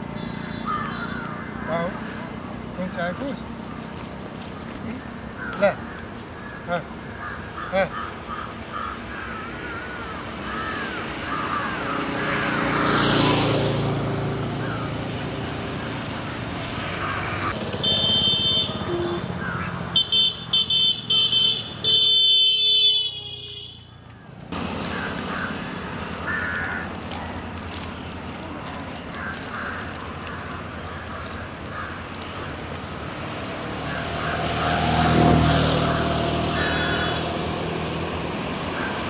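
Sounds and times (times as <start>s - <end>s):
birds chirping: 0.0s - 13.3s
vehicle passing: 0.0s - 20.1s, 24.4s - 39.0s
vehicle horn toots: 17.6s - 19.4s, 20.0s - 23.9s.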